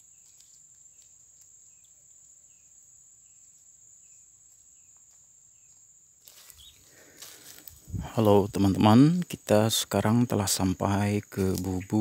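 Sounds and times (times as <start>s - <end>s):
high-pitched insect drone: 5.5s - 12.0s.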